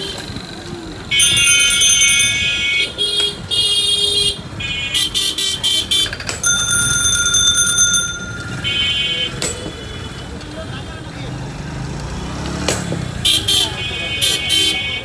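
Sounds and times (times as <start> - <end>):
vehicle horn honking: 1.1 - 6.1, 8.4 - 10.3.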